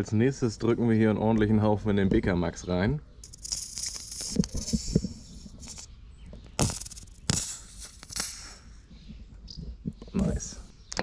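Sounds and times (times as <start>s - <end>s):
grease hissing from cartridge: 3.2s - 5.9s, 6.6s - 8.8s.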